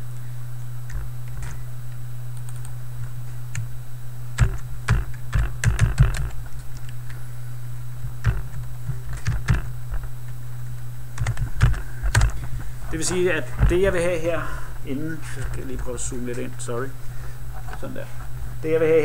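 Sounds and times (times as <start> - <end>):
steady low hum: 0.0 - 19.0
computer keyboard typing: 2.4 - 2.8, 4.4 - 7.0, 9.2 - 9.7, 11.2 - 12.4.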